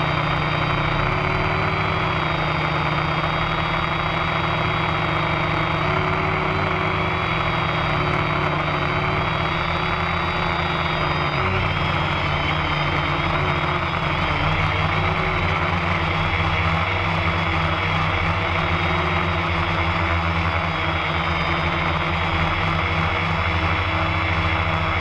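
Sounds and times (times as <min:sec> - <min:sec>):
drone motors and propellers whining: 0:00.0 - 0:25.0.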